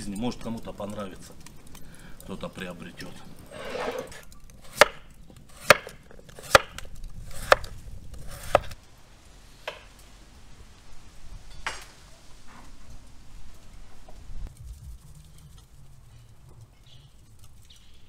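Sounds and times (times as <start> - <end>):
knife chopping on wooden board: 4.6 - 8.8.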